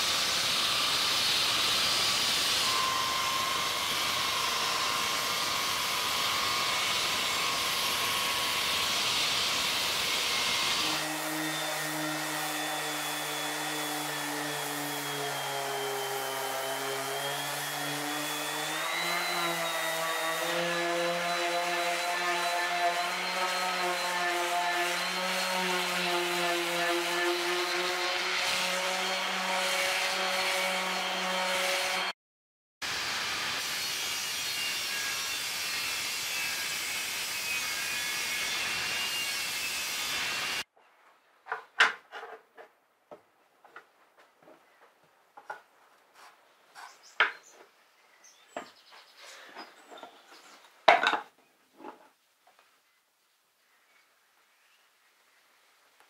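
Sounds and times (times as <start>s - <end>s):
orbital sander running: 0.0s - 32.1s
table saw ripping wood: 0.1s - 32.2s.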